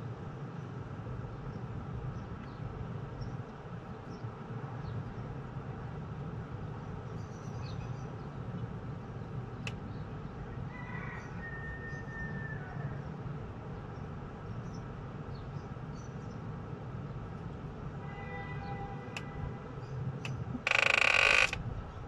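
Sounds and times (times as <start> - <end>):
low outdoor rumble: 0.0 - 22.0.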